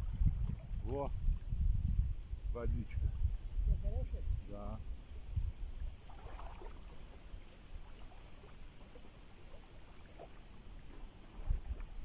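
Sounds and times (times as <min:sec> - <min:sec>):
water splashing and lapping: 0:00.0 - 0:01.6, 0:05.7 - 0:12.0
wind rumble on microphone: 0:00.0 - 0:12.0.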